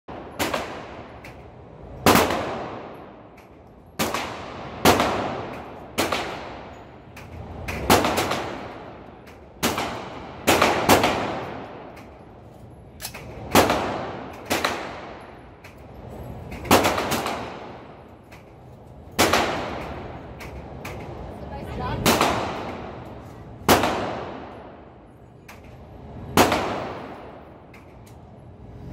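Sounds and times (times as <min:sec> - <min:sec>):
gunshots echoing indoors: 0:00.1 - 0:07.0, 0:07.6 - 0:12.2, 0:13.0 - 0:15.6, 0:16.6 - 0:18.1, 0:19.1 - 0:21.0, 0:22.0 - 0:25.0, 0:26.1 - 0:27.6.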